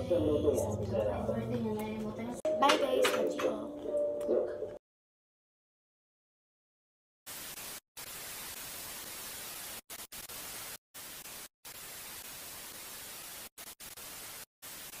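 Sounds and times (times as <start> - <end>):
static hiss: 7.3 - 15.0.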